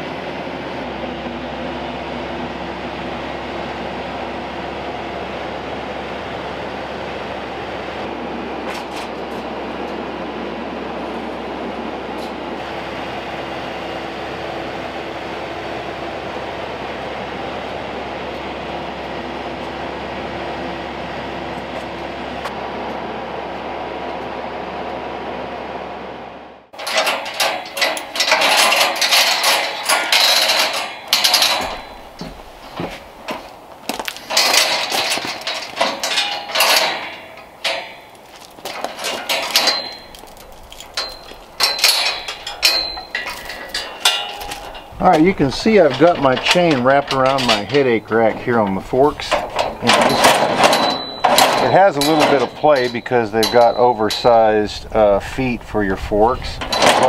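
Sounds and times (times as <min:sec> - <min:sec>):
tractor diesel engine running: 0:00.0 - 0:57.0
steel chain clinking on metal: 0:26.8 - 0:54.9, 0:56.4 - 0:57.0.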